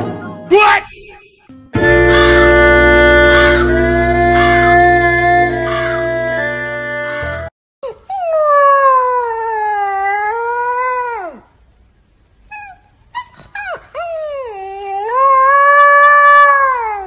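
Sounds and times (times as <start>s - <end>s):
puppy howling: 1.9s - 6.5s, 7.8s - 11.4s, 12.6s - 17.0s.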